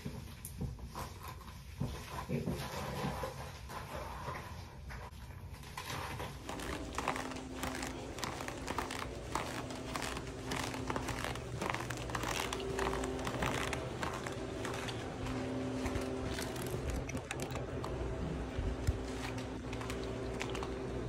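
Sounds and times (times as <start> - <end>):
crinkling and rustling handling noise: 5.5 - 21.0.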